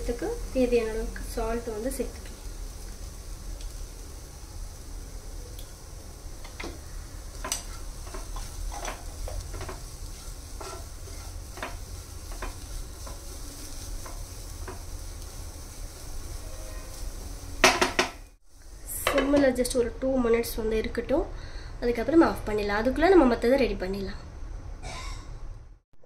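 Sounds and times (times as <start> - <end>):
light sizzle of sauteing: 0.0 - 24.7
wooden spatula scraping a pan: 6.5 - 18.2.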